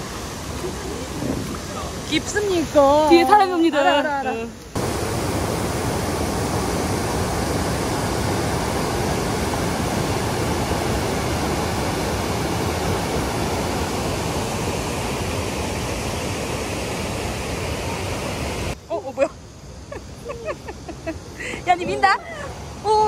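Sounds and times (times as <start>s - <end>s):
stream rapids roaring over boulders: 0.0s - 3.9s, 4.7s - 18.8s.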